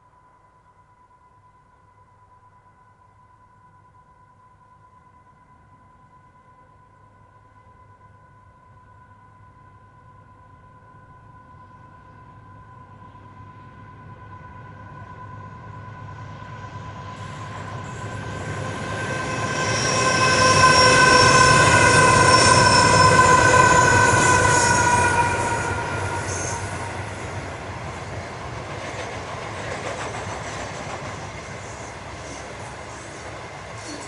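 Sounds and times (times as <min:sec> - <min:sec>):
freight train passing: 0:00.7 - 0:34.0
high-pitched wheel squeal: 0:17.2 - 0:27.5.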